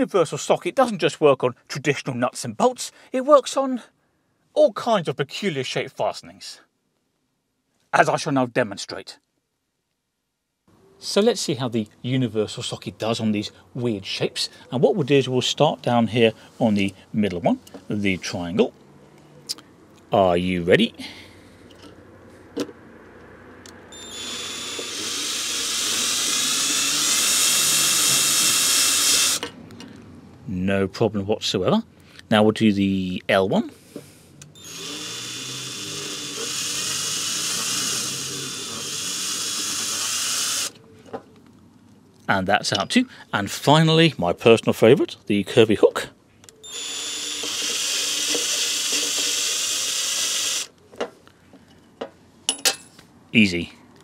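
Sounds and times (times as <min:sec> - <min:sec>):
cordless drill whirring: 0:23.9 - 0:29.6, 0:34.5 - 0:40.8, 0:46.6 - 0:50.8.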